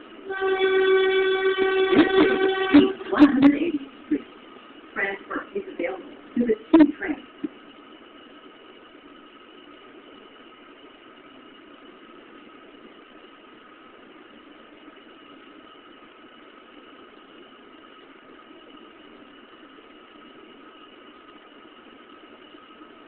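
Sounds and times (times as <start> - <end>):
subway car rushing hum: 0.0 - 4.2
faint constant whines: 0.0 - 23.0.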